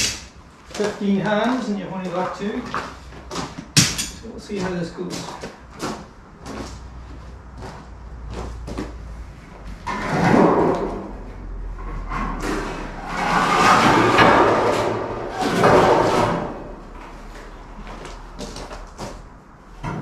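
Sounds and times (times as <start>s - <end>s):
footsteps on gravel: 4.5s - 9.0s
metal sheet wobbling and rattling: 9.8s - 17.0s.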